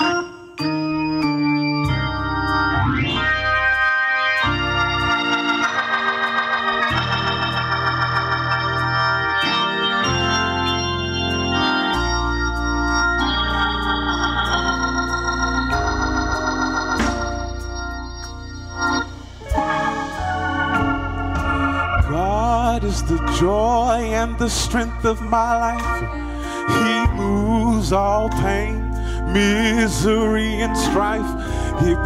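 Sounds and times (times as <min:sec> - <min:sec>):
organ and keyboard gospel chords: 0:00.0 - 0:32.0
deep bass line: 0:01.0 - 0:32.0
sharp percussive hits: 0:17.0 - 0:22.2.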